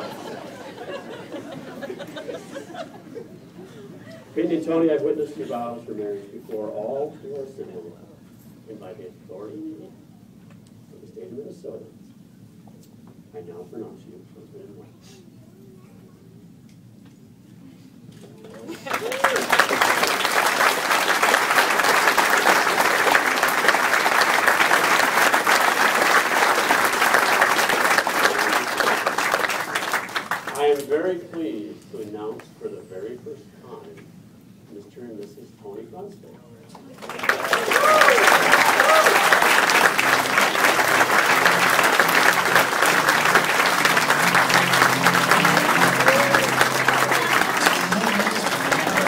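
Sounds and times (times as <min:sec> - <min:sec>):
crowd applauding: 0:00.0 - 0:03.0, 0:18.4 - 0:30.9, 0:36.8 - 0:49.0
instrumental music: 0:39.8 - 0:49.0.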